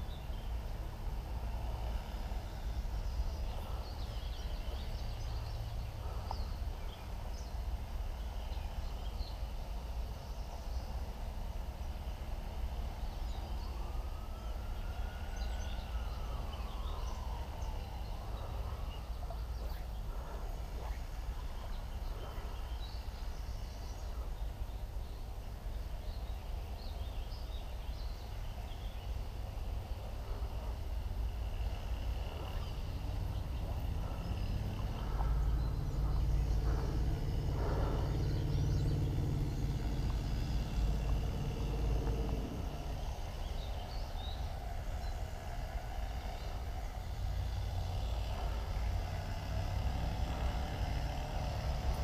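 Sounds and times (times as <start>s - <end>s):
low rumble: 13.0s - 52.0s
long rising and falling bird call: 27.3s - 51.9s.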